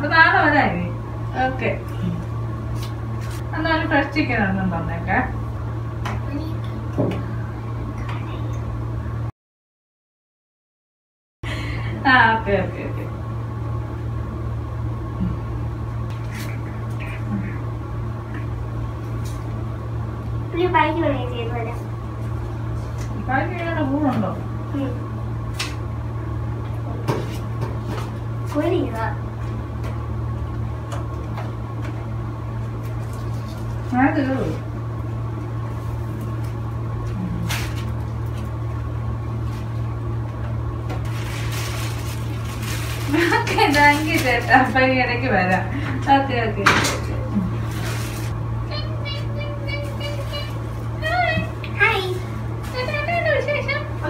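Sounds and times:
steady low hum: 0.0s - 9.3s, 11.4s - 54.0s
plastic bag crackling: 41.1s - 44.6s.

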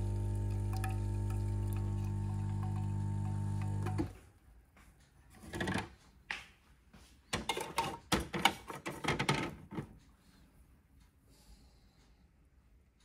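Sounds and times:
metal milk jug clattering: 7.4s - 9.9s.

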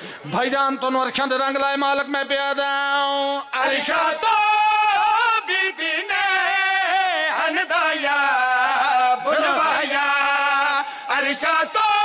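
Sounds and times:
men chanting: 3.5s - 12.0s.

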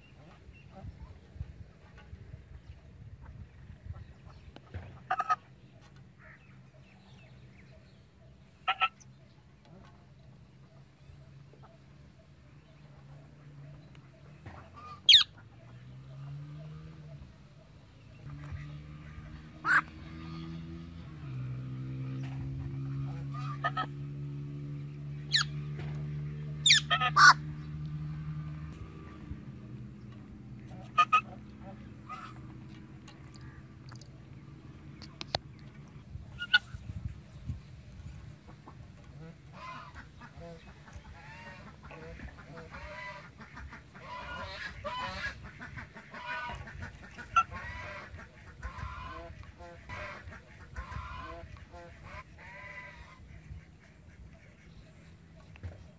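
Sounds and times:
birds calling: 0.0s - 55.9s
harsh parrot calls: 26.6s - 27.4s.

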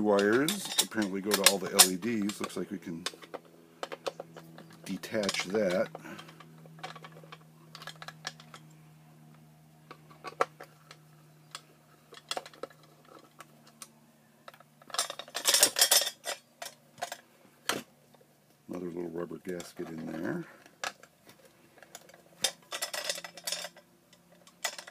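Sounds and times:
rattling and scraping: 0.0s - 8.7s, 9.9s - 13.9s, 14.5s - 17.9s, 19.5s - 24.9s
plastic parts clicking and knocking: 0.1s - 8.6s, 9.9s - 13.8s, 19.5s - 24.9s.

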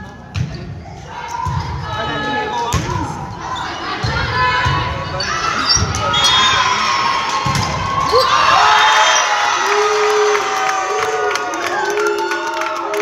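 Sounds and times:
crowd cheering: 6.1s - 13.0s.

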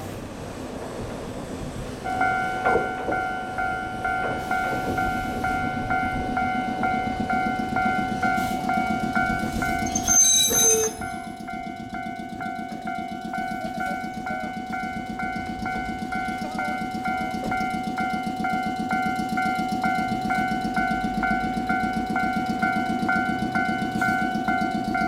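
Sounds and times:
train wheels rumbling: 0.0s - 25.0s
train brake squeal: 9.4s - 11.3s.

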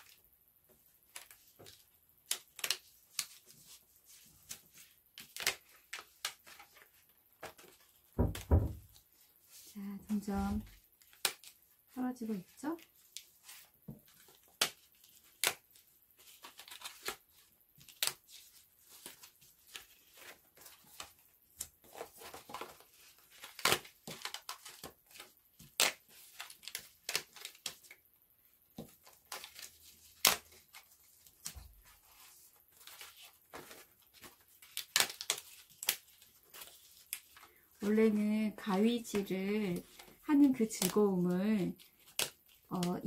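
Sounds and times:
paper rustling: 0.0s - 11.7s, 12.3s - 28.0s, 28.7s - 43.0s
card stock snapping and popping: 2.2s - 3.4s, 5.2s - 6.6s, 11.1s - 11.6s, 14.2s - 15.6s, 19.0s - 27.9s, 28.8s - 30.7s, 32.8s - 37.4s, 39.1s - 41.0s, 42.0s - 43.0s.

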